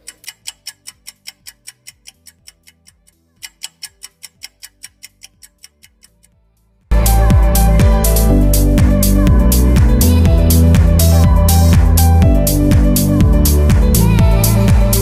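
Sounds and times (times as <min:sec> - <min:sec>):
rapid clock ticking: 0:00.0 - 0:06.2.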